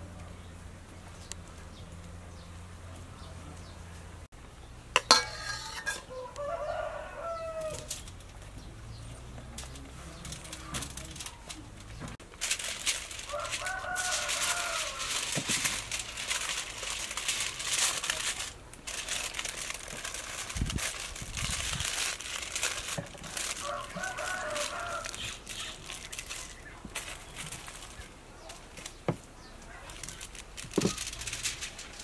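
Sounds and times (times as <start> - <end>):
aluminium foil crinkling: 5.0 - 8.5, 9.4 - 32.0
rooster crowing: 5.8 - 7.9, 13.2 - 15.4, 23.4 - 25.4.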